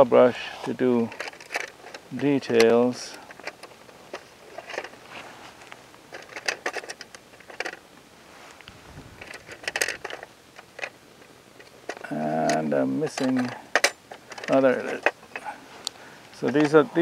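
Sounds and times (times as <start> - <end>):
paintbrushes clicking and rustling: 11.6 - 17.0.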